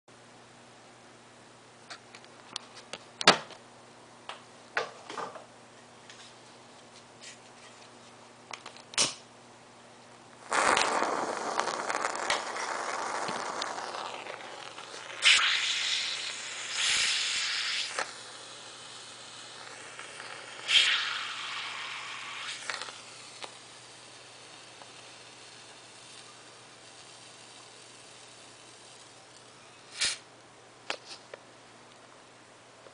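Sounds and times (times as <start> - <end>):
match burning with loud hiss: 10.4 - 30.2
match hissing in water: 10.4 - 30.2.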